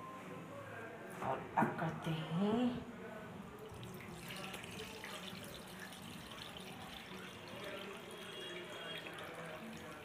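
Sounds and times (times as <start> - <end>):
liquid trickling onto flour: 3.6 - 10.0.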